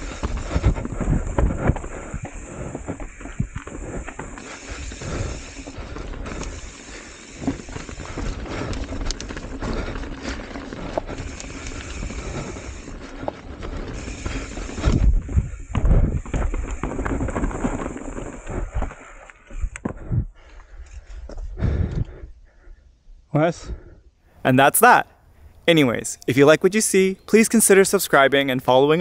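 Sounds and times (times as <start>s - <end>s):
tyres crunching over dirt: 0.0s - 20.0s
bike rattling and knocking: 0.0s - 22.0s.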